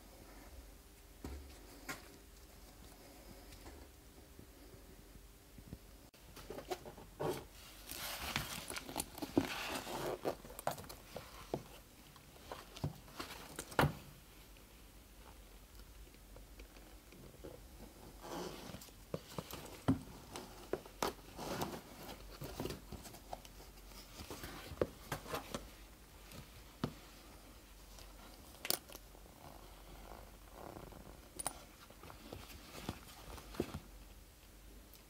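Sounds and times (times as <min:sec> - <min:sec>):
leather rustling: 0:07.7 - 0:13.8.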